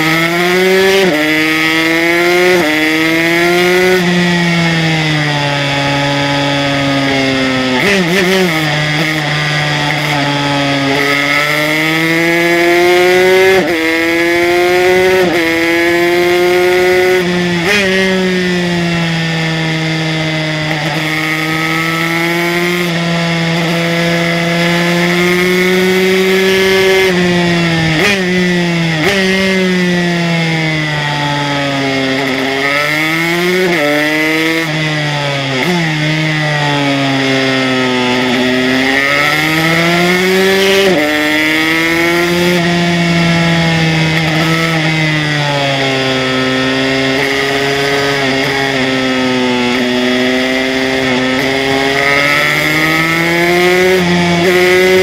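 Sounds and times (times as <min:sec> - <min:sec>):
two-stroke motorcycle engine racing: 0:00.0 - 0:55.0.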